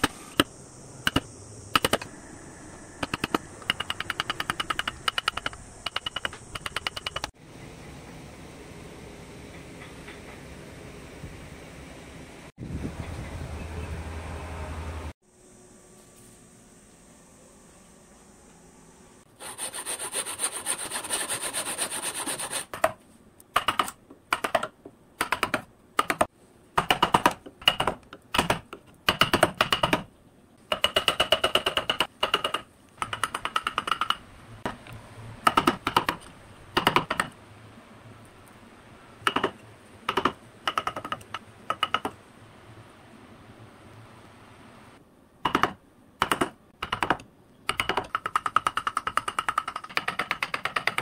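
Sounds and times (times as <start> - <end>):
hand tool scraping wood: 19.4 - 22.8.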